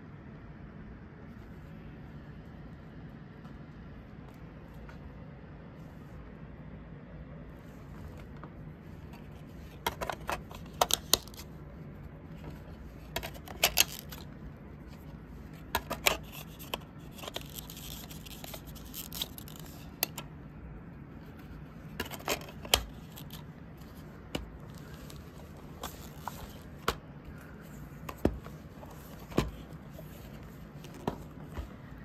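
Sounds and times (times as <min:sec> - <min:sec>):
soft rubbing and sliding: 0:21.1 - 0:32.0.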